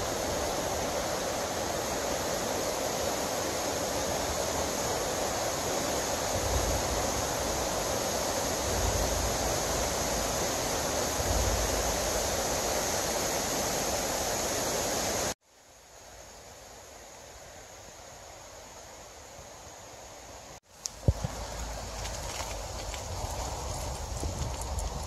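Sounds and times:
low rumbles: 20.9 - 25.0.

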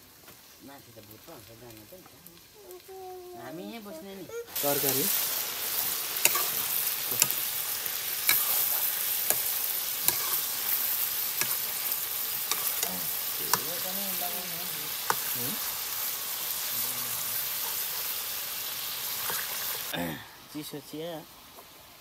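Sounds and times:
curry sizzling in a pan: 0.0 - 22.0
ladle clicking on metal pan: 6.2 - 7.4, 8.2 - 10.4.

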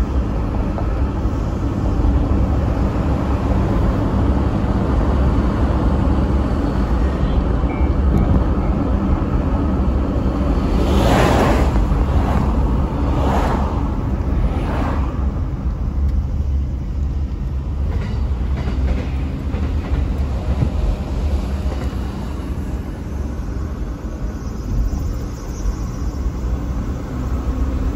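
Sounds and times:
electric train rumbling on rails: 0.0 - 27.9
train wheels clattering: 17.8 - 22.2.

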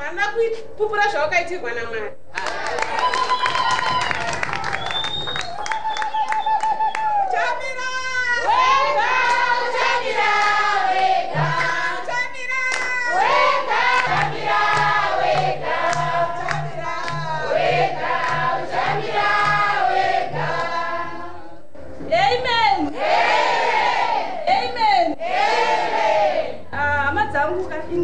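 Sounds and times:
choir singing: 8.4 - 12.3, 13.1 - 21.7, 22.9 - 24.4, 25.2 - 26.6
low steady beat: 13.1 - 22.3.

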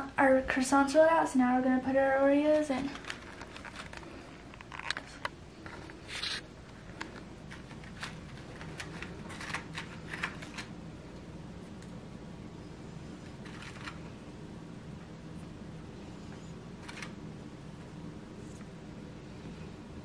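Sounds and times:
plastic package rustle: 2.6 - 10.7, 13.3 - 14.1.

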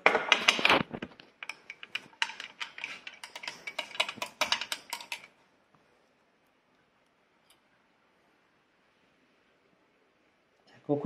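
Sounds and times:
containers clicking and tapping: 1.2 - 5.4.

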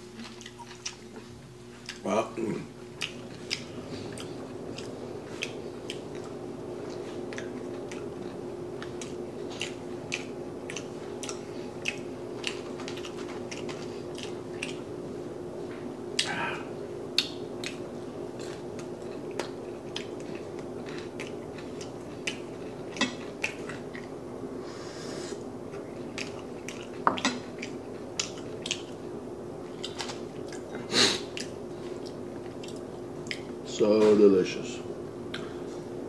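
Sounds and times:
steady low hum: 0.0 - 36.0
chewing crispy food: 0.1 - 2.1, 2.9 - 14.9, 17.2 - 24.2, 25.7 - 29.1, 29.7 - 33.6.

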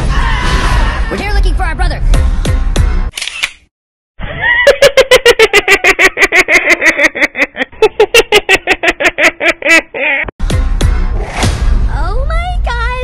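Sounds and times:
high-pitched cartoon laugh: 4.2 - 10.3.

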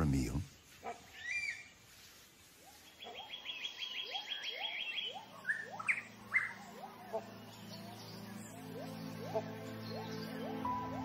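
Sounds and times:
sharp bird calls: 0.6 - 1.8, 2.6 - 11.0.

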